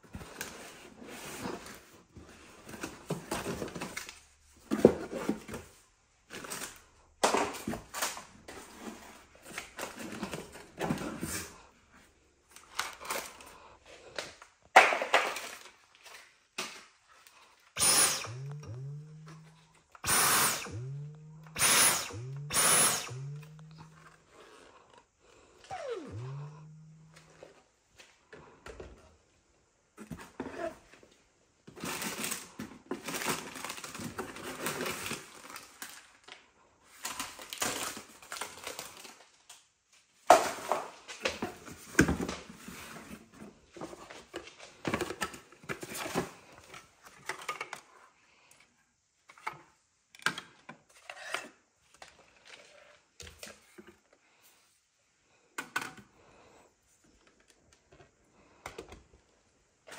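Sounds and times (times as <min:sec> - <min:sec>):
cardboard rustling and scraping: 0:00.0 - 0:06.8, 0:07.5 - 0:13.4, 0:41.3 - 0:48.0.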